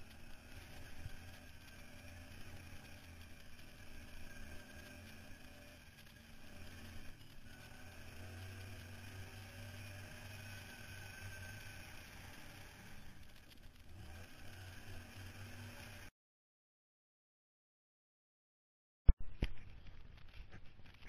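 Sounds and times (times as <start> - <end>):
rattle: 0.0 - 15.8
quad engine running: 0.0 - 16.1.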